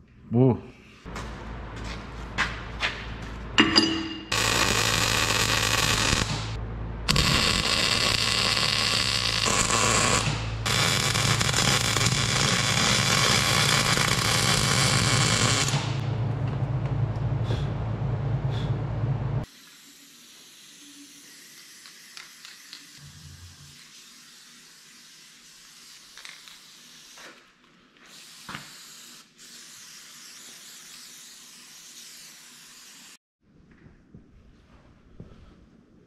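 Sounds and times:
welder arc buzzing and crackling: 4.3 - 16.1
spray paint can hissing: 19.5 - 27.4, 28.1 - 33.2.

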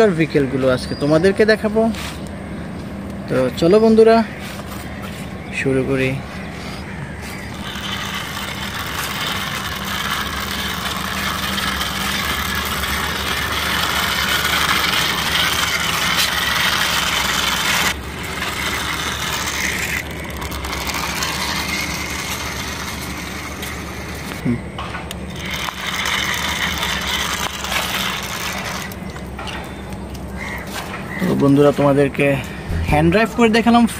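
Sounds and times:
toy wheels scraping on concrete: 7.2 - 24.5, 25.1 - 29.6.

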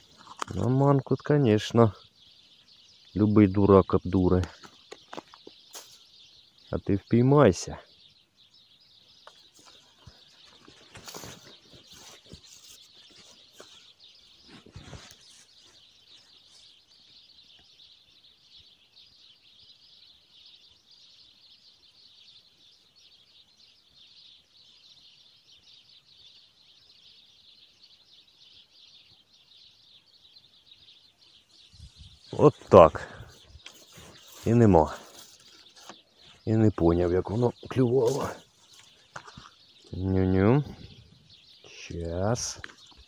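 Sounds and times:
small birds chirping: 0.0 - 43.0
rustles and knocks in reeds: 4.3 - 6.1, 9.2 - 16.8, 31.8 - 40.0.

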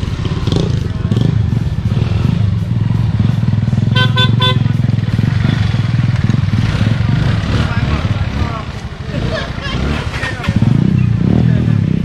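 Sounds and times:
vehicle engine running: 0.0 - 12.0
quick horn toots: 3.8 - 4.8.

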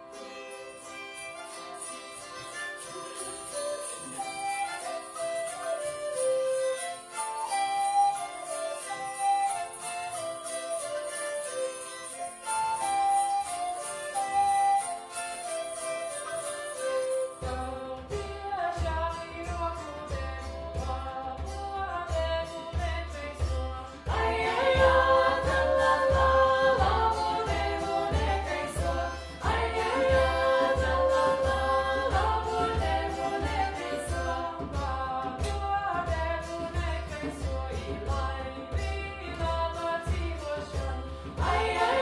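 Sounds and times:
women's group singing in harmony: 23.9 - 42.0
steady drum beat: 24.1 - 37.0, 40.8 - 42.0.

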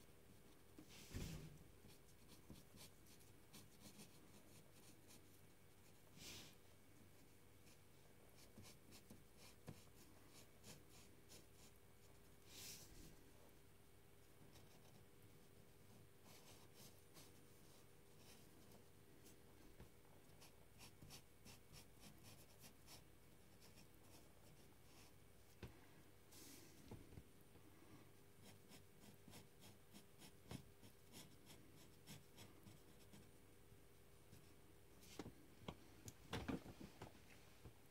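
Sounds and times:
pen scratching on paper: 1.8 - 5.2, 16.2 - 17.3, 20.4 - 23.0, 28.4 - 33.3.

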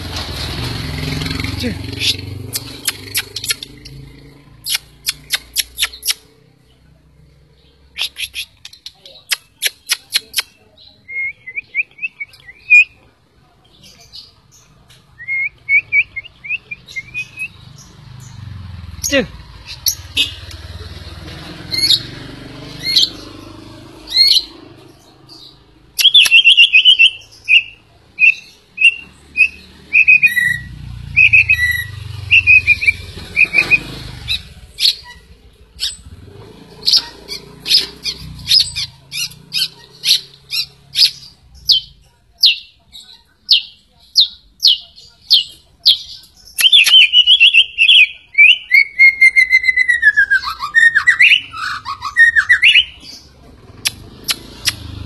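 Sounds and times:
bird singing whistled phrases: 11.0 - 13.0, 15.2 - 17.6, 26.0 - 34.0, 45.4 - 53.0.

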